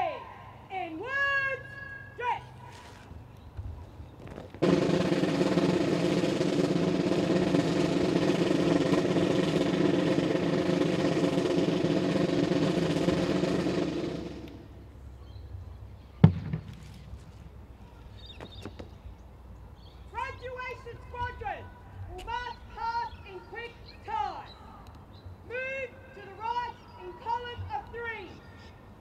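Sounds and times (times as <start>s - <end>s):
parade band music: 4.6s - 14.6s.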